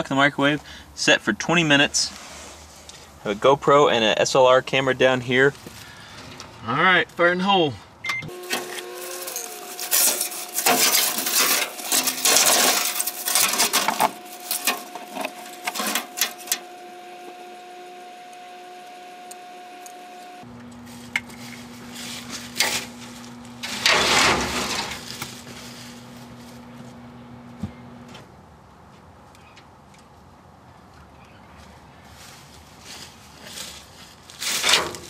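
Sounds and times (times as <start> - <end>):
microwave oven humming: 8.0 - 28.3.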